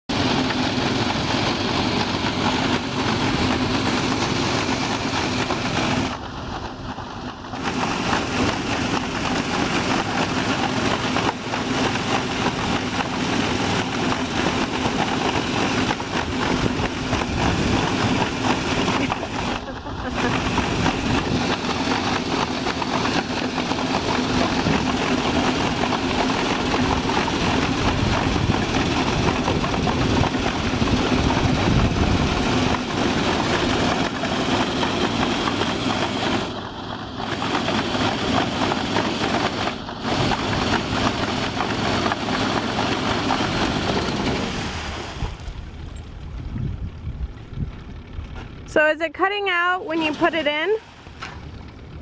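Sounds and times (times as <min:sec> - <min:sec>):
small engine running hard: 0:00.0 - 0:52.0
paddle wheel churning water: 0:00.1 - 0:52.0.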